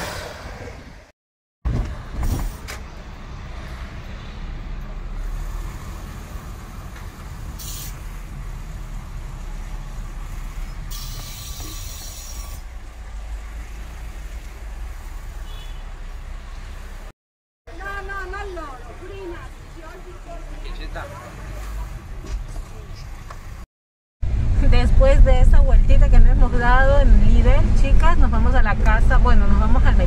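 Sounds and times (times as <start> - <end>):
car engine and tyre rumble: 1.7 - 17.1, 17.7 - 30.0
short hiss: 7.6 - 8.0, 10.9 - 12.6.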